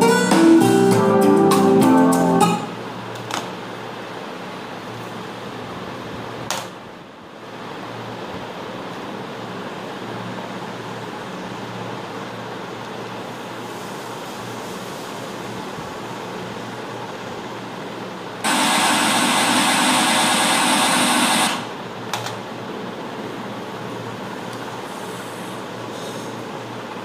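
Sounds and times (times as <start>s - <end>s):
room hum and hiss: 0.0s - 27.0s.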